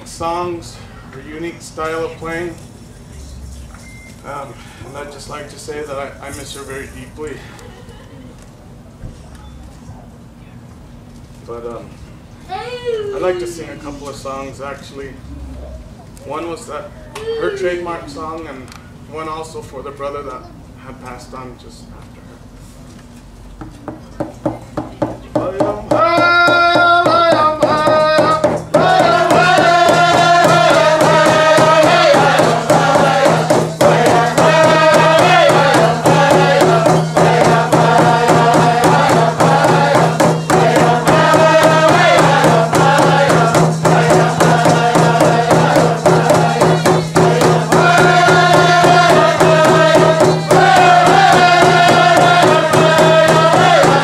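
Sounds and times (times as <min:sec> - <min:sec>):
frame drums beating: 0:24.4 - 0:54.0
group singing: 0:25.9 - 0:54.0.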